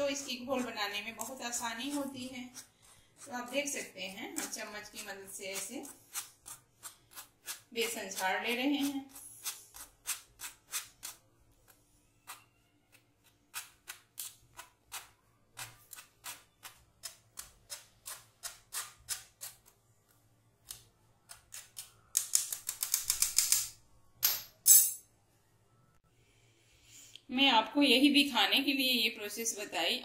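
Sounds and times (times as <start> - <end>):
spoon scraping metal mesh strainer: 0.0 - 11.2.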